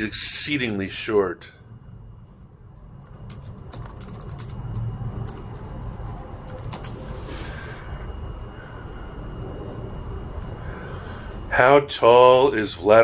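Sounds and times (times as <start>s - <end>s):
computer keyboard typing: 2.8s - 7.0s.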